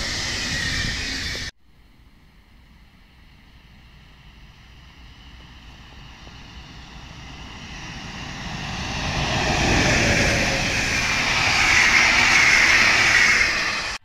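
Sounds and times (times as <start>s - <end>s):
train wheels rushing on rails: 0.0s - 1.5s, 3.1s - 14.0s.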